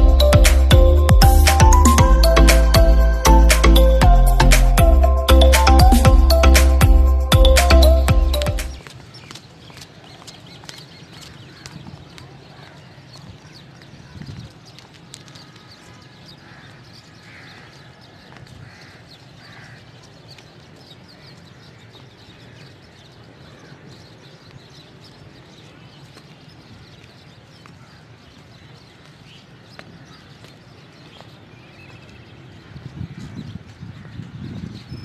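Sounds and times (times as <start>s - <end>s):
high chirps: 0.0s - 8.8s.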